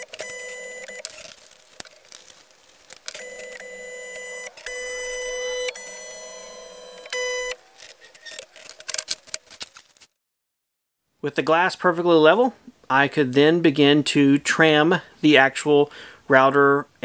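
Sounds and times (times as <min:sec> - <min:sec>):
stepper motors whining: 0:02.8 - 0:09.4.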